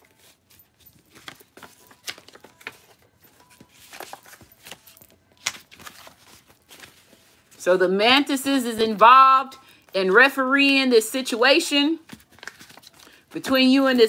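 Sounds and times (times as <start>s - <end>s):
paper cards being shuffled: 0.0s - 7.6s, 12.0s - 13.3s.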